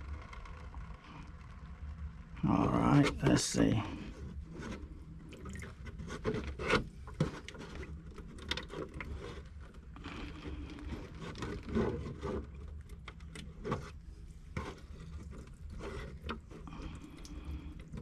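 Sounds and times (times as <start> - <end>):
water draining from pipe: 5.2 - 6.2, 6.9 - 18.0.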